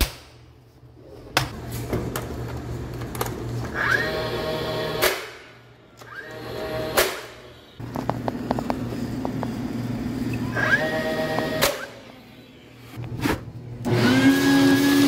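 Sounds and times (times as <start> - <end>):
nailer motor whining: 10.4 - 12.0.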